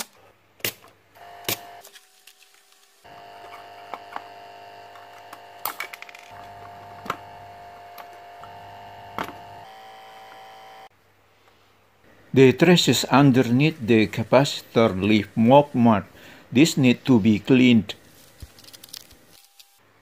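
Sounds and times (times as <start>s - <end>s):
steady hum: 3.1s - 10.9s.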